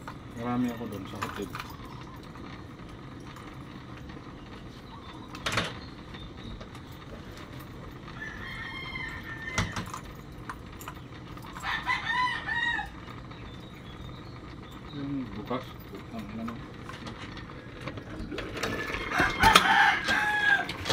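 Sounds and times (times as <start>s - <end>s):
rooster crowing: 8.1s - 10.2s, 11.6s - 13.2s, 18.7s - 20.9s.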